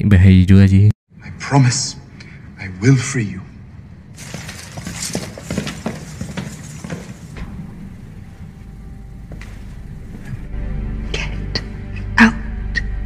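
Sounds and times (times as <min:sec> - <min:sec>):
low steady hum: 0:03.9 - 0:12.5
armour gear clinking: 0:04.2 - 0:07.4
footsteps and scuffling: 0:04.2 - 0:10.4.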